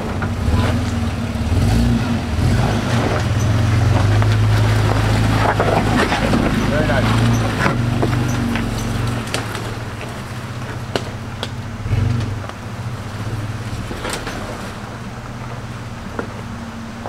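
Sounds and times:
truck engine running at low revs: 0.0s - 17.0s
sharp clicks and knocks: 2.6s - 12.6s.

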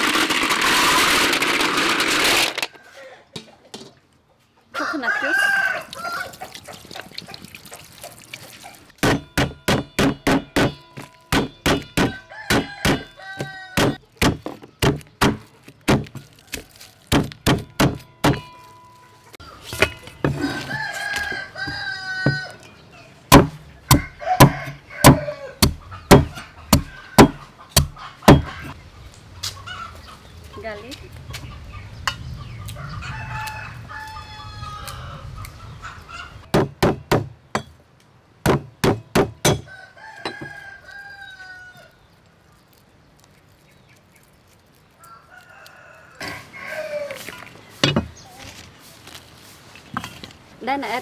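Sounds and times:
rooster crowing: 4.7s - 6.4s, 12.0s - 14.0s, 20.3s - 22.7s, 23.9s - 25.6s, 32.7s - 36.3s, 39.6s - 42.0s, 45.0s - 47.5s
cleaver chopping on wooden board: 9.0s - 16.2s, 17.1s - 18.5s, 23.3s - 28.5s, 36.5s - 37.7s, 38.4s - 39.7s.

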